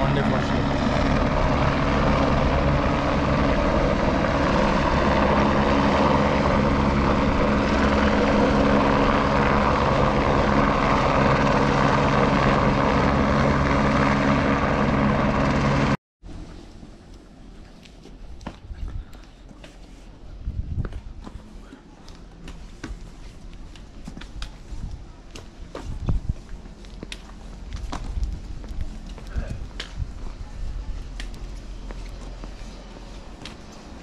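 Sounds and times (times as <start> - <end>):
helicopter flying nearby: 0.0 - 17.1, 21.7 - 34.0
faint footsteps on stone path: 16.4 - 34.0.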